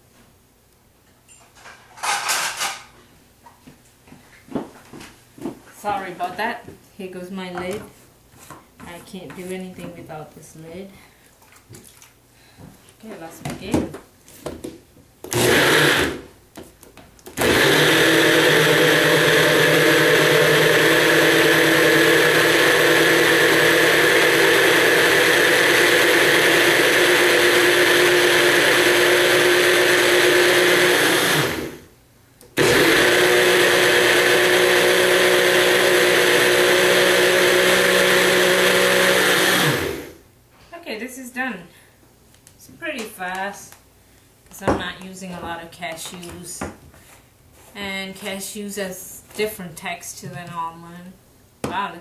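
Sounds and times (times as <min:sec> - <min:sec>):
blender motor running: 0:15.3 - 0:16.2, 0:17.4 - 0:31.9, 0:32.6 - 0:40.2.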